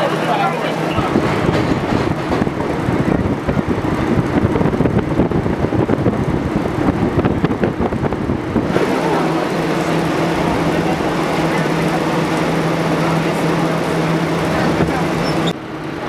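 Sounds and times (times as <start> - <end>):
subway car rumbling on track: 0.0 - 16.0
rattles and clacks: 1.0 - 4.9.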